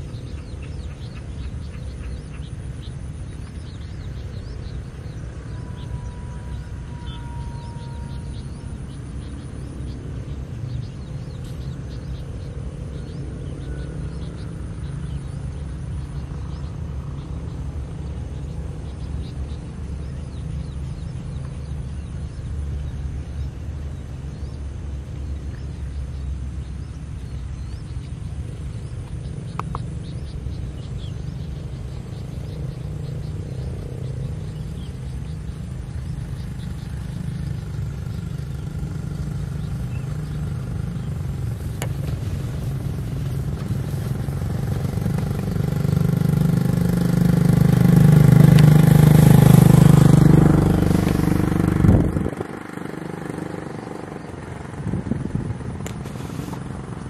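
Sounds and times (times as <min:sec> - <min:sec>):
faint bird chirps: 0:00.0 - 0:24.6
low outdoor rumble: 0:00.0 - 0:57.0
short tone: 0:05.5 - 0:08.6.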